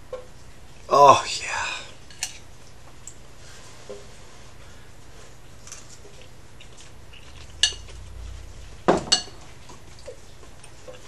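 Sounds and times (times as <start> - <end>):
utensil clinking on cookware: 7.5 - 8.0, 8.9 - 9.4.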